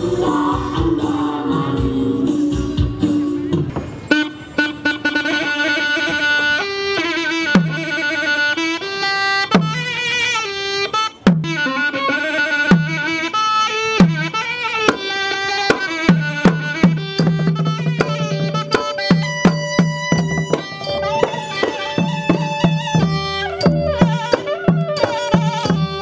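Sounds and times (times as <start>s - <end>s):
low drum strokes: 16.1s - 26.0s
wavering melody line: 16.1s - 26.0s.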